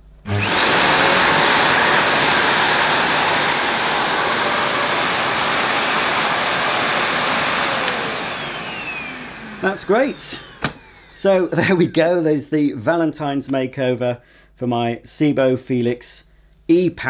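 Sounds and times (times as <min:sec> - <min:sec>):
vacuum cleaner running: 0:00.2 - 0:12.0.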